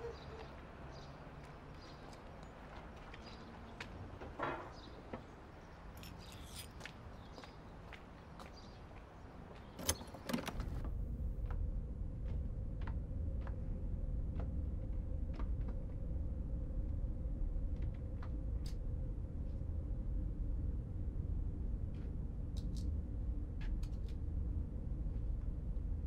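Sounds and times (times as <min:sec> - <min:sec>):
low rumbling hum: 0:10.4 - 0:26.0.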